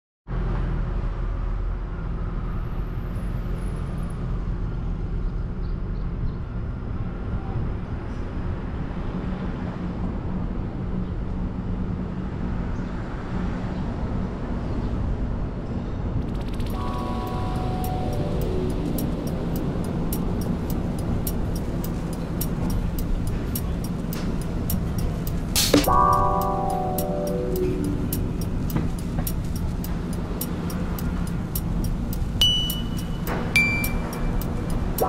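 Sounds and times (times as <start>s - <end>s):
tyre and road noise: 0.3s - 35.0s
car engine hum: 16.4s - 25.8s, 27.9s - 35.0s.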